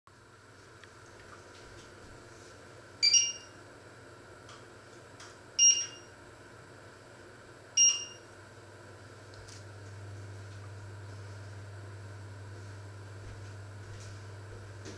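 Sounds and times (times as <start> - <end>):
cooktop short electronic beeps: 3.0 - 3.6, 5.6 - 6.1.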